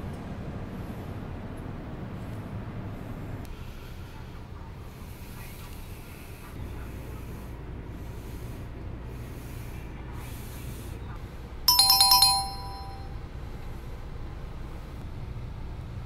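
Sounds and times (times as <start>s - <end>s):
bright ringing chime: 11.7s - 13.1s.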